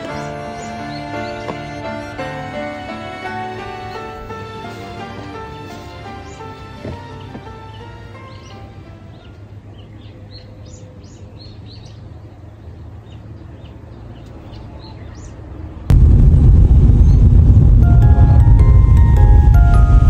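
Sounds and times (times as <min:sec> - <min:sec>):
small birds chirping: 0:00.0 - 0:02.2, 0:06.0 - 0:15.9
loud rushing noise: 0:15.9 - 0:20.0.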